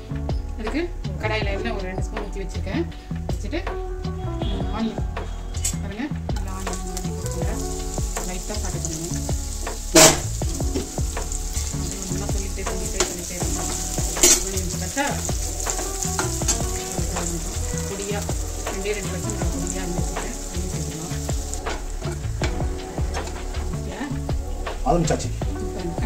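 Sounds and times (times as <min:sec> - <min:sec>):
metal spoon scraping and clanking pan: 0:06.4 - 0:19.3
onions sizzling in oil: 0:06.4 - 0:26.0.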